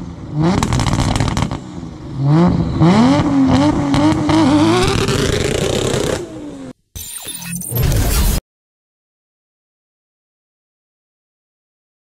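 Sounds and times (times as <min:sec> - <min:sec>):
car engine revving hard: 0:02.2 - 0:06.7.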